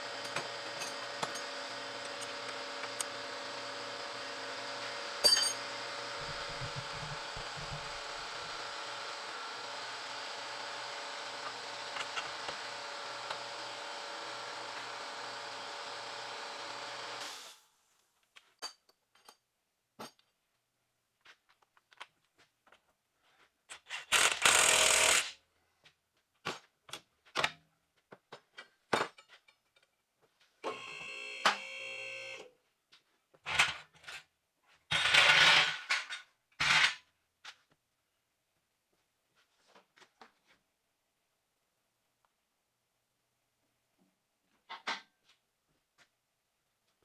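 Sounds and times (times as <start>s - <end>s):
impact wrench hammering: 4.9s - 8.6s.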